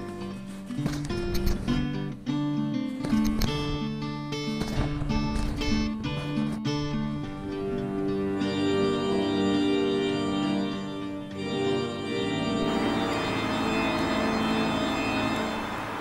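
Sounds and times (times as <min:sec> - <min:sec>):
music of held chords: 0:00.0 - 0:16.0
steady rushing noise: 0:12.6 - 0:16.0.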